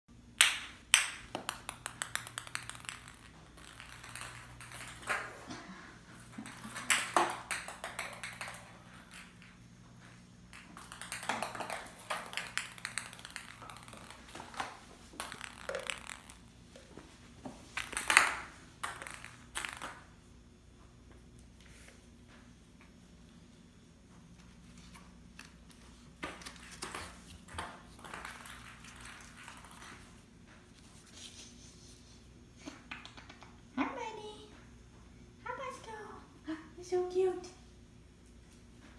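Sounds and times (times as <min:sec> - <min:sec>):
ping pong balls bouncing on tile: 0:00.3 - 0:09.6, 0:10.5 - 0:20.1, 0:26.2 - 0:30.0.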